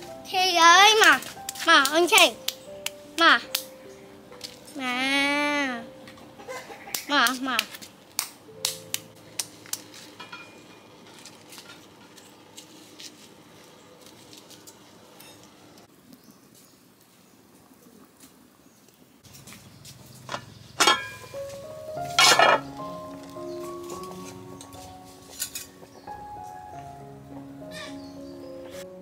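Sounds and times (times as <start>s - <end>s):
metal cookware clank: 10.2s - 10.9s, 20.2s - 21.4s, 22.0s - 22.7s.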